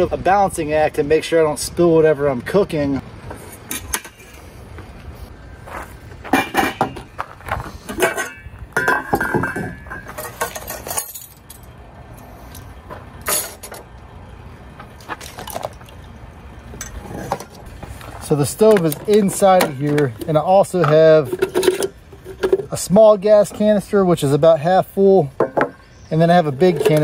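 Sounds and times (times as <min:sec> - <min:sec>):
metal cookware clinking: 0:08.0 - 0:11.3.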